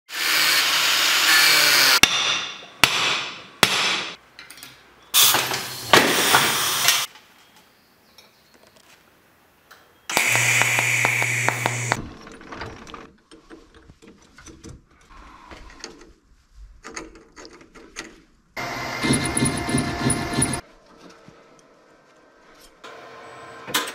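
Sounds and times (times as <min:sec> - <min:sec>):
angle grinder cutting steel: 0:00.1 - 0:02.0, 0:10.1 - 0:12.0
sharp metal knocks: 0:02.0 - 0:04.2.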